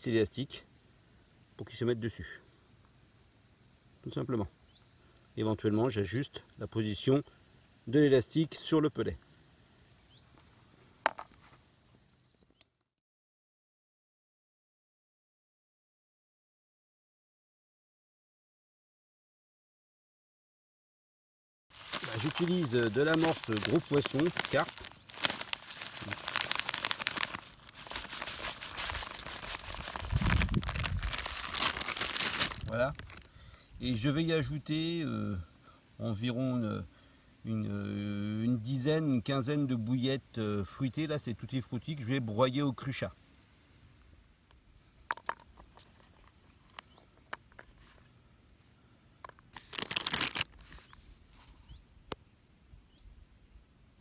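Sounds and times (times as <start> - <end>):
crumbs rustling and crackling: 21.7 - 33.3, 49.2 - 51.6
plastic bag crinkling: 21.7 - 33.3, 49.3 - 51.0.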